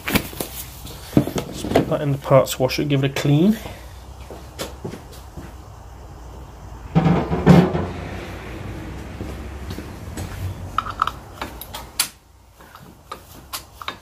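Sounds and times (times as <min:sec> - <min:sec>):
low hum: 0:05.7 - 0:12.0
loud knock: 0:07.0 - 0:08.2.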